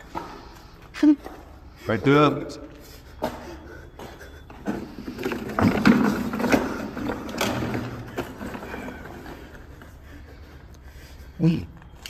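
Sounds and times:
plastic chairs scraping on concrete: 0:04.7 - 0:09.8.

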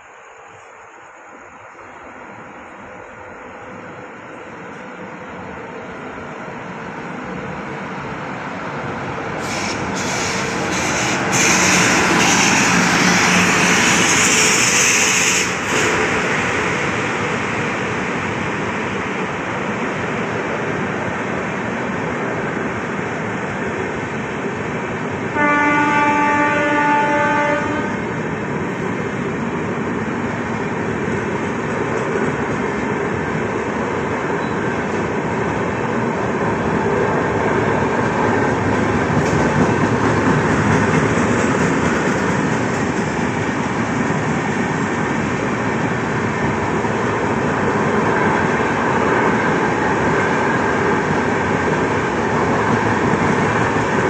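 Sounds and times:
train coaches rumbling and clattering: 0:00.0 - 0:54.0
locomotive rushing past: 0:08.8 - 0:20.3
train horn: 0:25.3 - 0:28.1.

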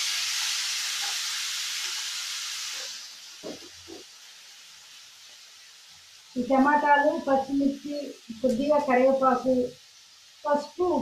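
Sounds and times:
vegetables sizzling in hot oil: 0:00.0 - 0:11.0
faint knocks: 0:03.4 - 0:04.1.

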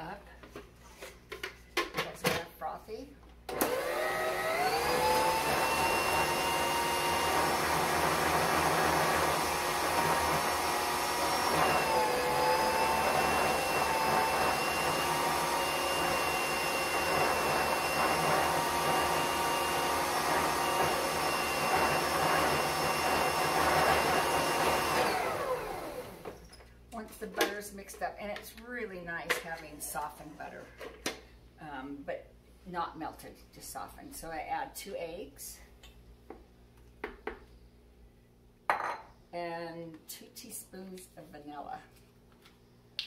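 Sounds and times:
stand mixer motor whining: 0:03.5 - 0:26.4.

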